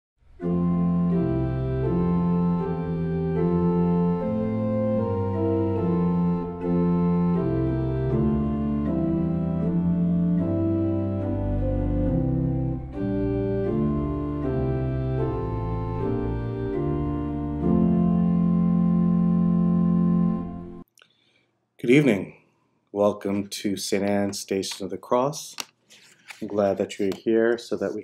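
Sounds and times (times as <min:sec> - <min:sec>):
organ playing slow chords: 0:00.2 - 0:20.9.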